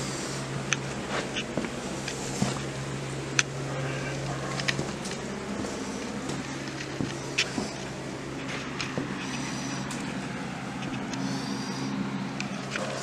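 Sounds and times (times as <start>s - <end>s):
electric motor humming: 0.0s - 13.0s.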